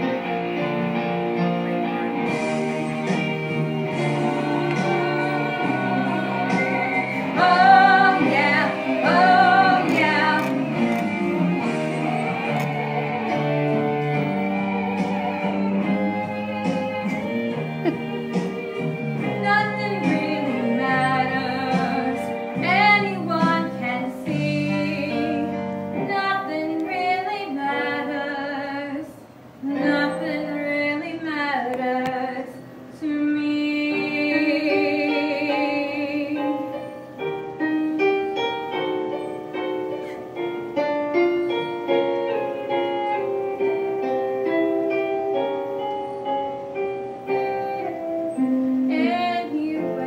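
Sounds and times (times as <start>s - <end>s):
backing track with piano: 0.0s - 50.0s
woman singing into a microphone: 2.9s - 10.8s, 14.5s - 36.8s, 47.8s - 50.0s.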